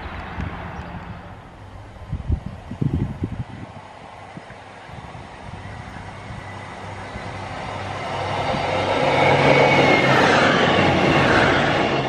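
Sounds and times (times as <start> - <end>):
diesel train engine: 0.0 - 12.0
wheels on rails: 3.6 - 12.0.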